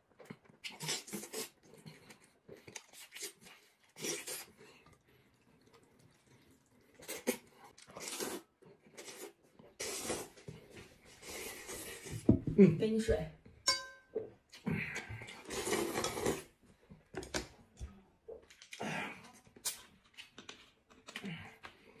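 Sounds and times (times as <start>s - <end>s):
chewing noises: 0.1s - 9.8s
man slurping noodles: 7.0s - 10.4s, 15.3s - 16.5s.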